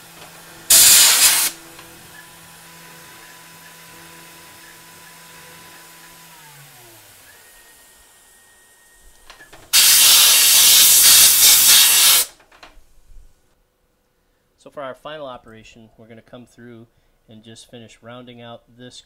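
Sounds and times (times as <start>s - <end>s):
air blow gun hissing: 0.6s - 1.6s, 9.7s - 12.4s.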